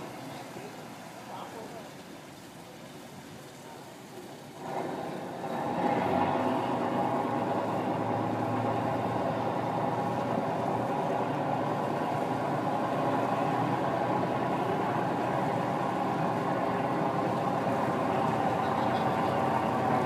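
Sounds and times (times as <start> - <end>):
diesel boat engine running: 4.4 - 20.0.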